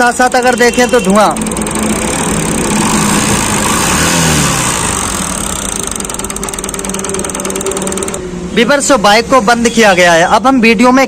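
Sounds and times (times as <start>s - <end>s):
motorcycle engine revving and idling: 0.0s - 8.5s.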